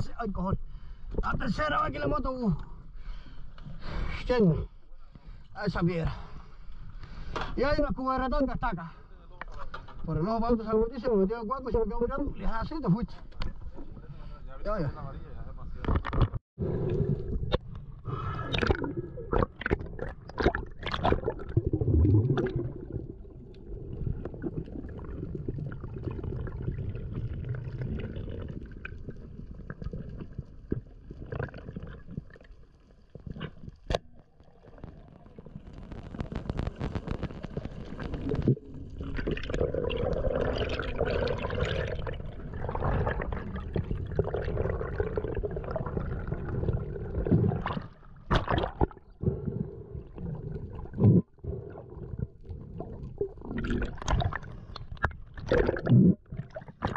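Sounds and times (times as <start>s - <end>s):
water gurgling and sloshing: 15.5s - 56.9s
rough water splashing: 47.3s - 49.1s.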